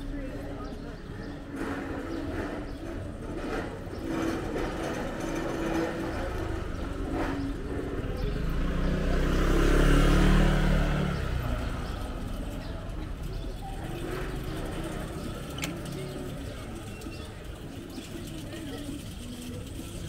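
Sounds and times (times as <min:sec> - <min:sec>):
street noise: 0:00.0 - 0:20.0
voices: 0:00.0 - 0:20.0
vehicle passing by: 0:05.5 - 0:16.5.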